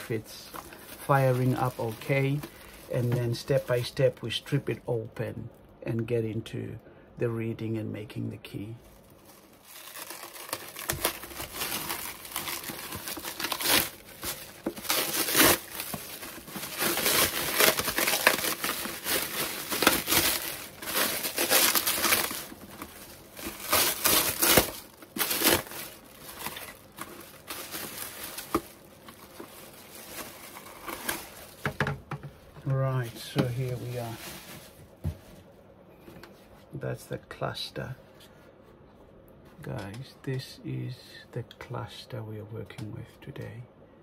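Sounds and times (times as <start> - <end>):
cling film crinkling: 0.0 - 4.3, 8.8 - 32.0, 32.6 - 35.0.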